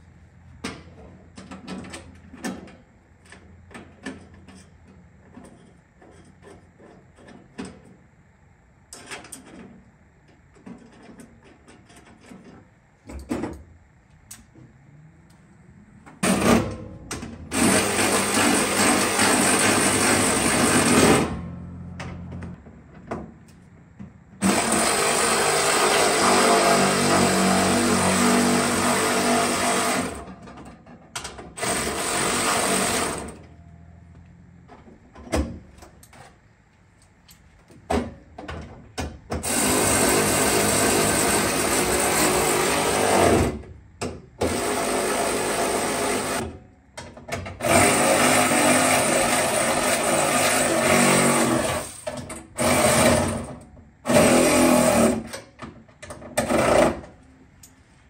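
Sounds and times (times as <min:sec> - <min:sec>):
power tool bursts: 0:17.5 - 0:21.4, 0:24.4 - 0:30.2, 0:31.6 - 0:33.4, 0:39.4 - 0:43.6, 0:44.4 - 0:46.5, 0:47.6 - 0:55.3.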